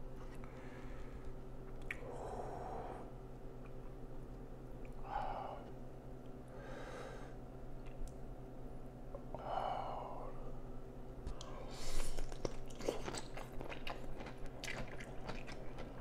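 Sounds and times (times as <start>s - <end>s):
faint electrical hum: 0.0s - 16.0s
person breathing softly: 0.3s - 1.4s, 2.0s - 3.2s, 6.5s - 7.4s.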